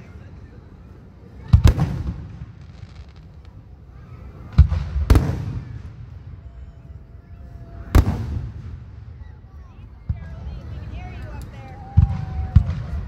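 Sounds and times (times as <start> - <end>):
firework shells booming: 4.5 - 6.2.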